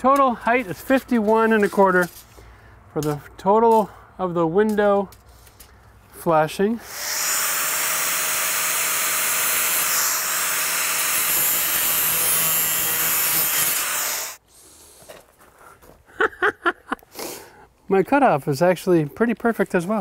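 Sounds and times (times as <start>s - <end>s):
angle grinder cutting vinyl: 6.8s - 14.4s.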